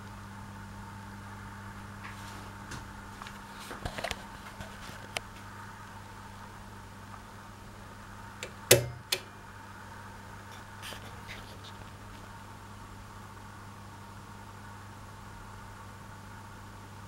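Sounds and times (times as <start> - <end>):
radio switch click: 8.4 - 9.3
faint radio hum: 10.1 - 12.5.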